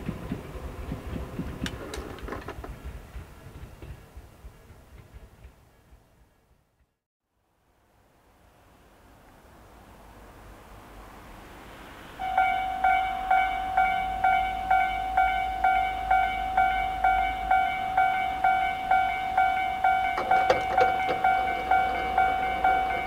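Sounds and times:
clatter of clicks: 1.6s - 2.8s
level-crossing electronic bell ringing: 12.2s - 23.0s.

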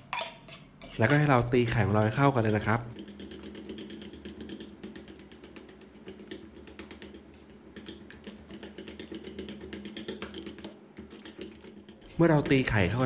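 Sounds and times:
fork beating in metal bowl: 0.0s - 12.7s.

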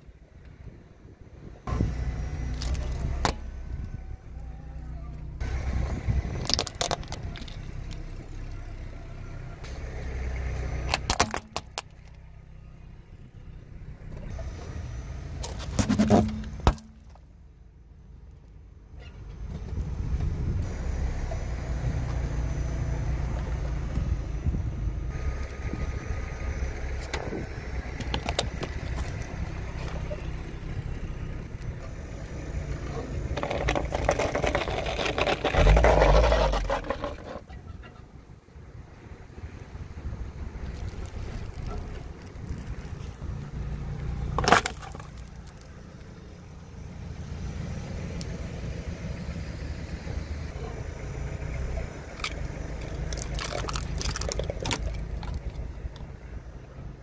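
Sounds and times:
car engine rumble: 0.0s - 57.0s
tyre rolling on asphalt: 33.2s - 37.5s, 40.6s - 46.3s
gel beads crackling: 40.7s - 43.2s, 52.2s - 55.7s
plastic cracking and snapping: 44.4s - 45.7s, 52.2s - 56.1s.

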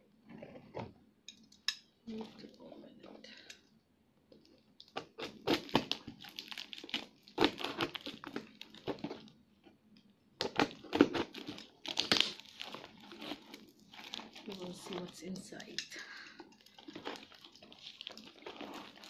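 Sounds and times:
plastic wrapping crinkling and tearing: 4.3s - 9.4s, 10.4s - 19.0s.

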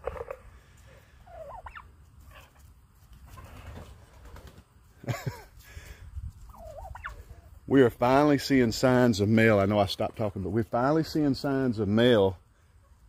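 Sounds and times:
turkey gobbling: 0.0s - 0.5s, 1.1s - 2.6s, 6.5s - 7.5s.

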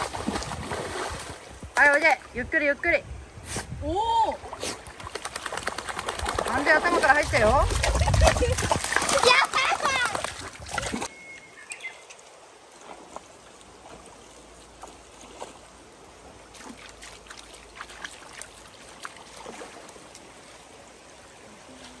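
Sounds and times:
stream trickling: 4.1s - 22.0s
small splashes and drips: 4.4s - 11.1s, 16.5s - 20.7s.

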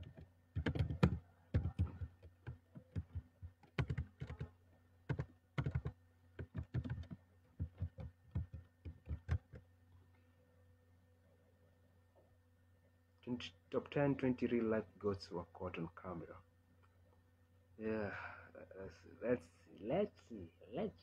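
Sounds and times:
fingers tapping a touchscreen: 0.0s - 9.7s.

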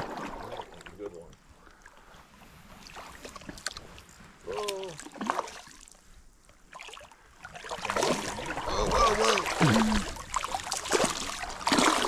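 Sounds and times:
water sloshing around legs: 2.6s - 12.0s.

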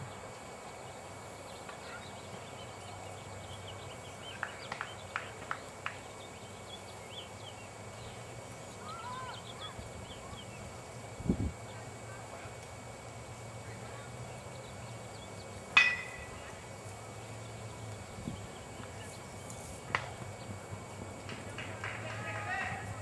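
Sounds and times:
small birds chirping: 0.0s - 10.9s, 13.7s - 20.9s
outdoor hiss: 0.0s - 23.0s.

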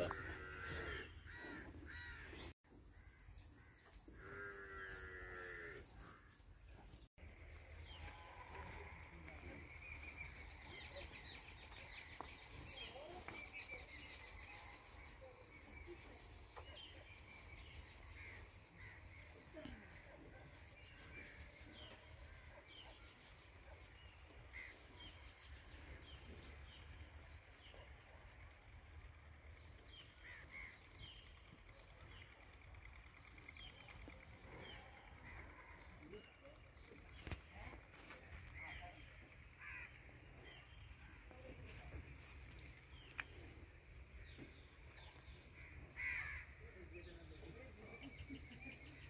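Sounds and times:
cow mooing: 0.0s - 1.2s.

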